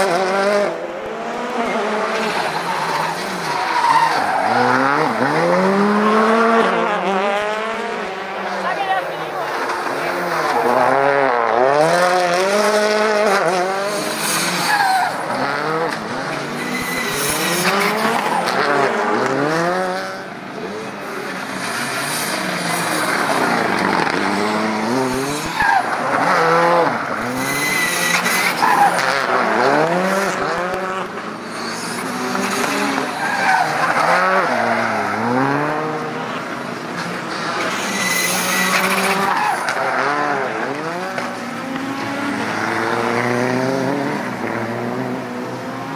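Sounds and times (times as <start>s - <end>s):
rally car engines revving: 0.0s - 45.9s
tyre squeals: 2.2s - 5.4s, 13.9s - 18.9s, 22.1s - 29.8s, 37.6s - 40.3s.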